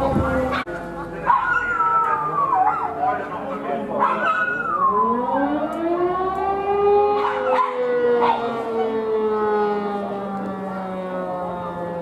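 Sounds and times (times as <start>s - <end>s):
dog howling: 0.5s - 9.1s.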